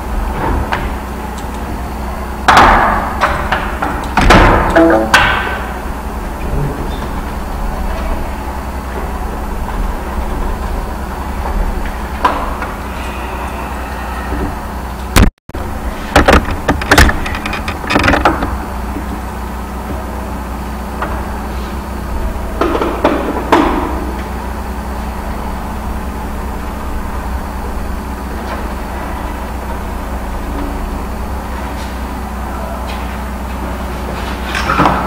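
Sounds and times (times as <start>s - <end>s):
steady low hum: 0.0s - 35.0s
sharp knocks and clicks: 16.2s - 19.2s.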